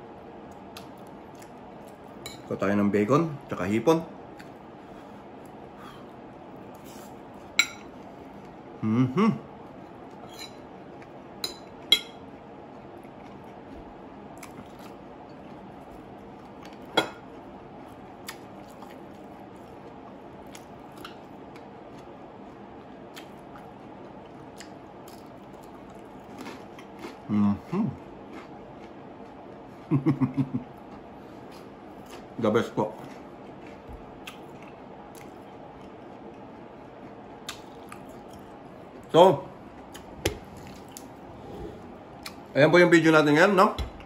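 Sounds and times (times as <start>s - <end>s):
quiet eating sounds: 0.0s - 44.0s
person humming: 8.8s - 9.5s.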